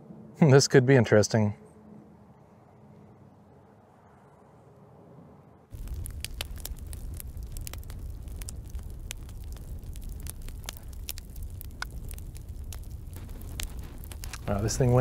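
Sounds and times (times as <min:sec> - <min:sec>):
low rumble: 0:05.7 - 0:15.0
wood fire crackling and popping: 0:05.7 - 0:15.0.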